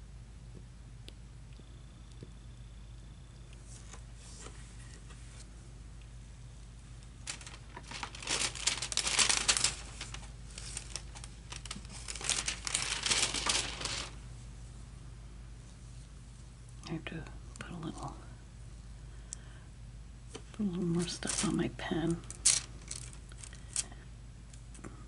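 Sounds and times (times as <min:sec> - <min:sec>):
plastic crinkling: 0:07.0 - 0:14.3, 0:20.4 - 0:24.0.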